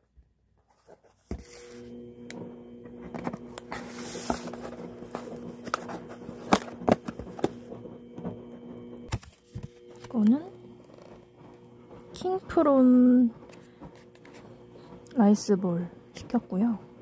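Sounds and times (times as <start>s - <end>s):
cardboard scraping and sliding: 0.7s - 2.0s, 3.0s - 7.8s.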